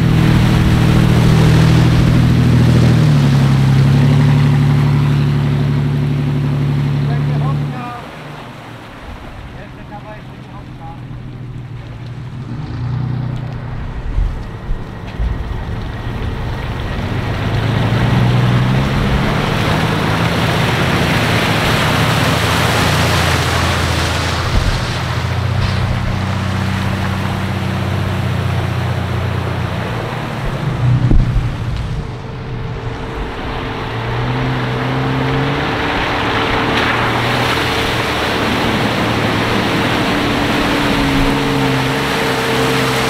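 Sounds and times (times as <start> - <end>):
engine revving under load: 0.0 - 43.0
loud rushing noise: 12.2 - 43.0.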